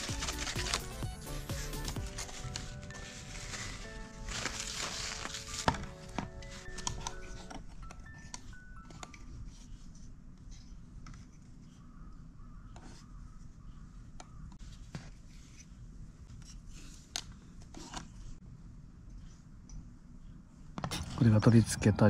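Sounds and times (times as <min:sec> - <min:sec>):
plastic pieces rubbing: 0:00.0 - 0:07.7.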